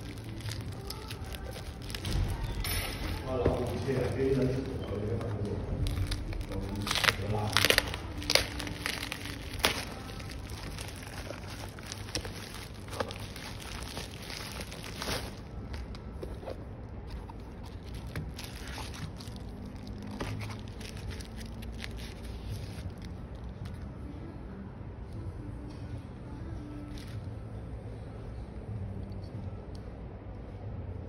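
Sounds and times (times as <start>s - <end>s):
bubble wrap crinkling: 0.0s - 23.8s.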